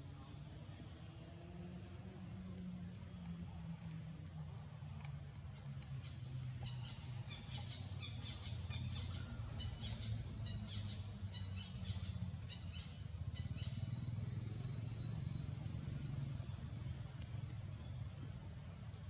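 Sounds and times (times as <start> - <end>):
steady low hum: 0.0 - 19.0
birds chirping and twittering: 5.1 - 19.0.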